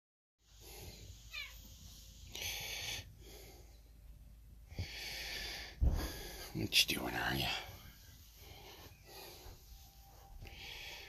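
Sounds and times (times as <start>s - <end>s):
soft hiss: 0.4s - 11.0s
cat chirp-like meow: 1.3s - 1.6s.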